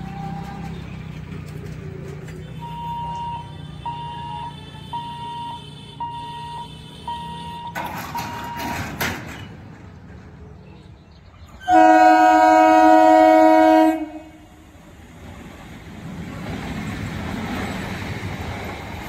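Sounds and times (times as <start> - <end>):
level crossing warning beeps: 2.6 - 8.9
train horn: 11.6 - 14.6.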